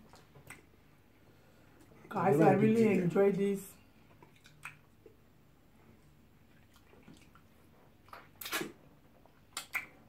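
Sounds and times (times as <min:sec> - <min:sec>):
wet mouth smacks: 0:00.1 - 0:00.7, 0:04.1 - 0:05.2, 0:06.6 - 0:08.8, 0:09.4 - 0:10.0.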